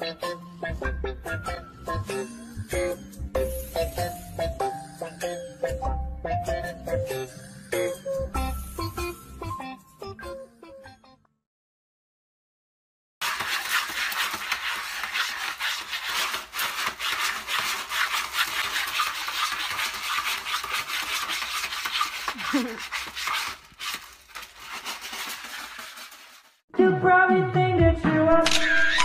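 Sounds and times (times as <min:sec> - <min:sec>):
cat scratching litter pellets: 0:13.2 - 0:26.6.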